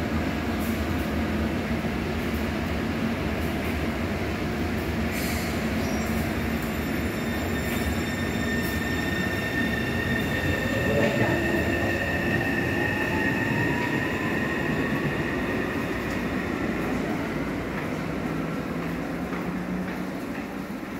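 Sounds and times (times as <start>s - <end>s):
train rumble: 0.0s - 20.9s
high wheel squeal: 5.8s - 16.0s.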